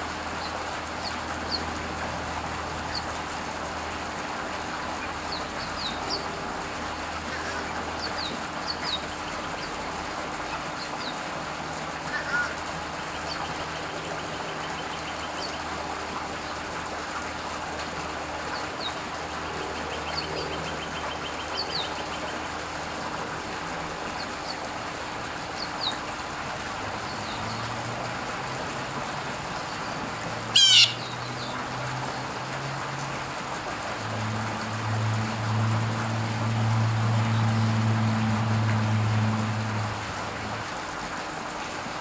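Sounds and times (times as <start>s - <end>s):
low engine drone: 11.8s - 41.1s
birds chirping: 29.5s - 31.6s
harsh bird call: 30.6s - 31.2s.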